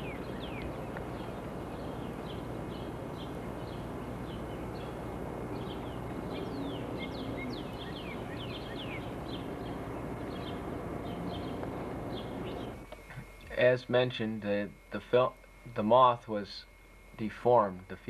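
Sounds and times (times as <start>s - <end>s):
birds chirping: 0.0s - 13.4s.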